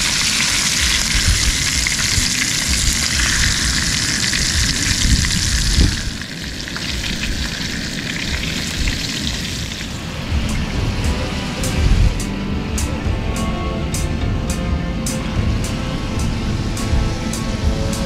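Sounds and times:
fish frying in hot oil: 0.0s - 10.1s
wind rumble on microphone: 0.0s - 18.0s.

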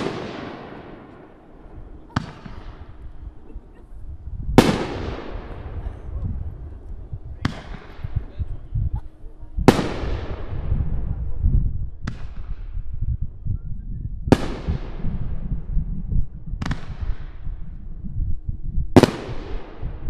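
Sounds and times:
firework shells bursting: 0.0s - 3.3s.

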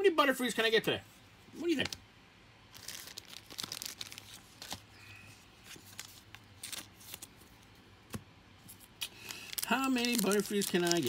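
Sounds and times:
cards rustling and clicking: 2.8s - 4.9s, 5.6s - 11.0s.

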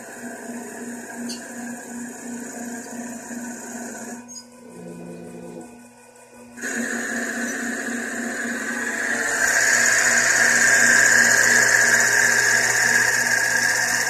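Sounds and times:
lathe machine whine: 0.0s - 14.0s
hiss of wood cutting: 6.6s - 14.0s.

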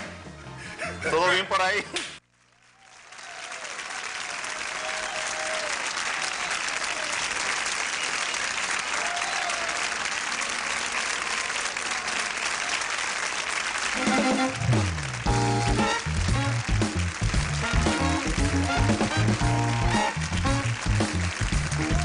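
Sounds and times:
audience applauding: 2.4s - 22.0s.

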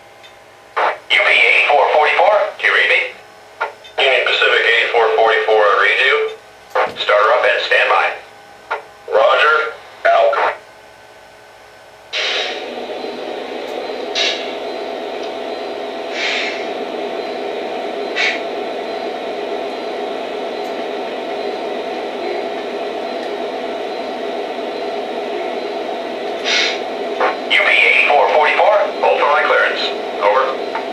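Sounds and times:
short air hisses: 12.1s - 12.6s, 16.1s - 16.6s.

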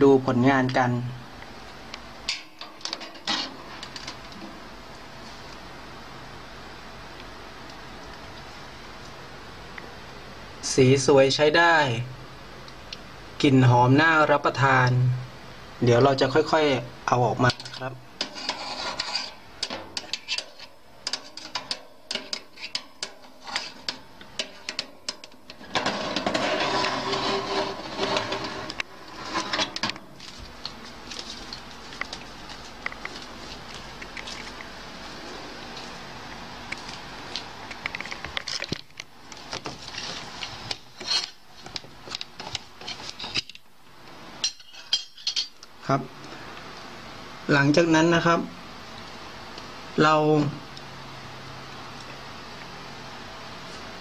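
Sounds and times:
metal baking tray and utensils clattering: 2.3s - 4.2s, 17.5s - 30.2s, 44.4s - 45.6s.

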